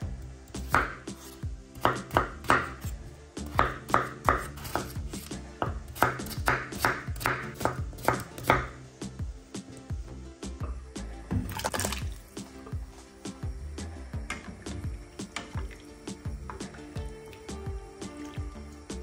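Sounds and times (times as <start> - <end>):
background music: 0.0 - 19.0
knife chopping on cutting board: 0.6 - 8.8.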